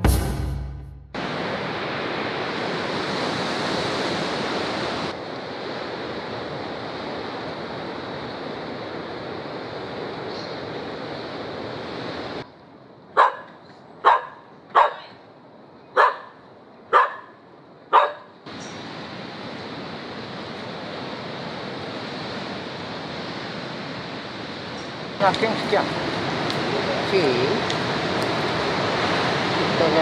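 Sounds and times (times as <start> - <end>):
steady rushing noise: 0.0 - 13.1, 17.7 - 30.0
dog barking: 13.2 - 15.2, 16.0 - 18.3.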